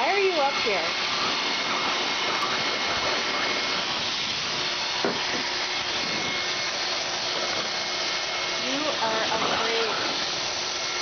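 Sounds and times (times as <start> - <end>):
dryer blowing air: 0.0 - 11.0
thin whine: 0.0 - 11.0.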